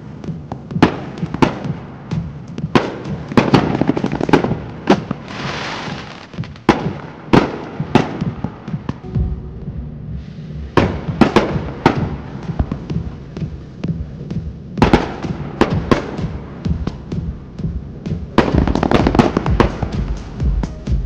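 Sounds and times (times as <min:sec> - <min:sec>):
fireworks bangs: 0:00.0 - 0:17.4, 0:18.0 - 0:20.4
fireworks hissing: 0:05.0 - 0:07.0.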